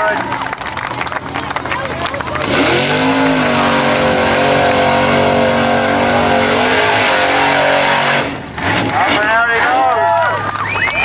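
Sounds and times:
suv engine revving hard: 2.1s - 10.2s.

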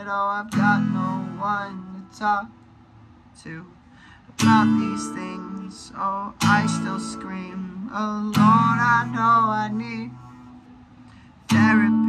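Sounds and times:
acoustic guitar chords strummed: 0.0s - 12.0s.

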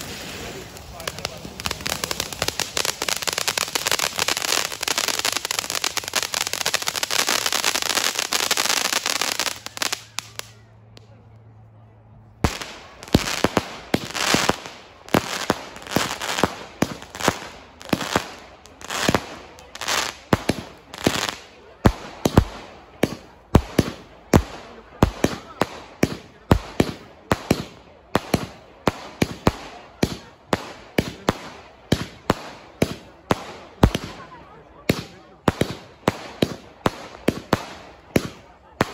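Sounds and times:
crackling hiss: 0.0s - 10.6s
fireworks bangs: 0.0s - 10.6s, 12.4s - 38.9s.

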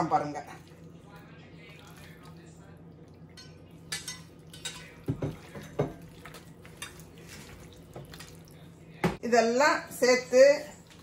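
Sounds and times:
hand mixing chicken in marinade: 0.2s - 9.0s.

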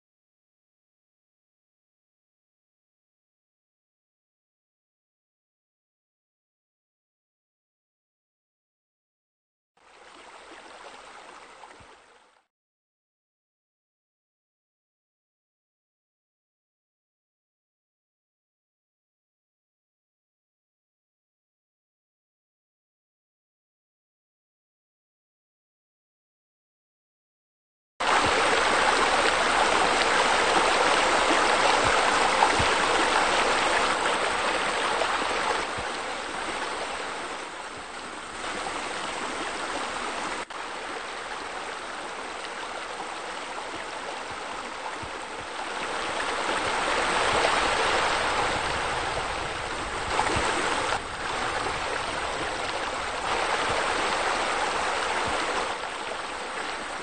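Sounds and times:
splashing waterfall and fountain: 9.9s - 12.2s, 28.0s - 57.0s.

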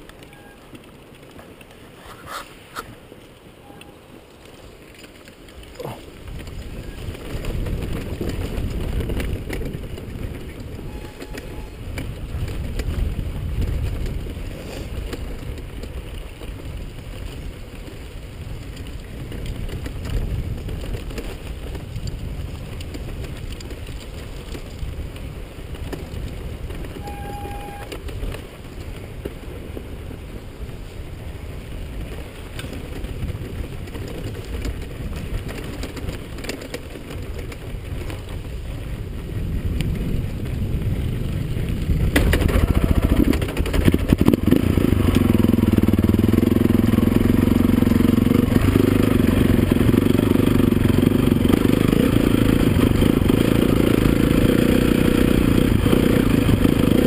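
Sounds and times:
wind rumbling on microphone: 0.0s - 57.0s
dirt bike engine running: 5.5s - 57.0s.

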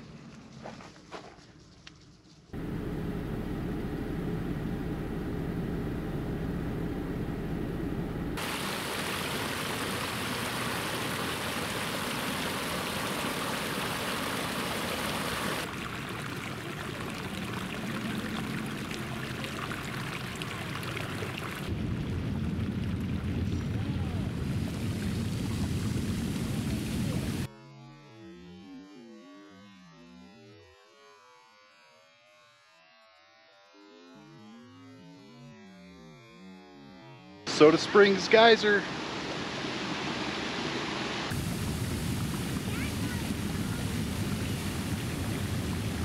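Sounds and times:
water rushing and splashing: 8.4s - 27.5s, 37.5s - 46.0s.

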